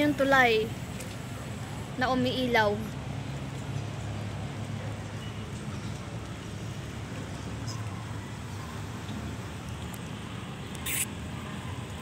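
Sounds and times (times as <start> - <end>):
brief hiss: 10.8 - 11.1.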